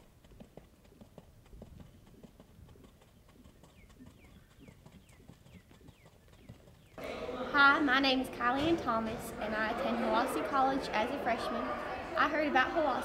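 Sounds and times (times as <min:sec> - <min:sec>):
horse trotting on sand: 0:00.0 - 0:07.0.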